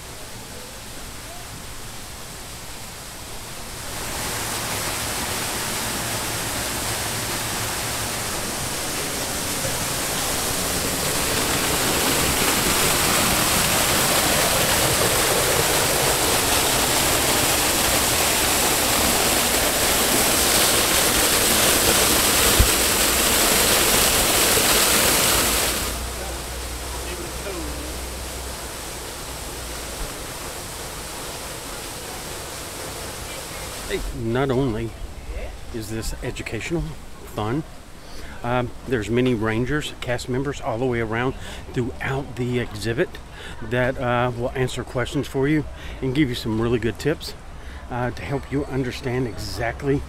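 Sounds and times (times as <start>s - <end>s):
waterfall pouring onto rocks: 3.6s - 34.7s.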